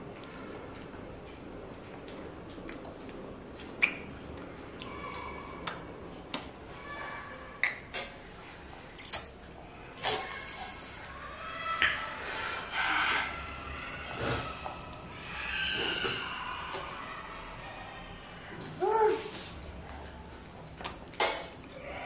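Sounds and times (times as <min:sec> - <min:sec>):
toddler mouth clicks and lip smacks: 0:02.0 - 0:06.6, 0:07.6 - 0:08.2, 0:09.0 - 0:10.4, 0:20.7 - 0:21.4.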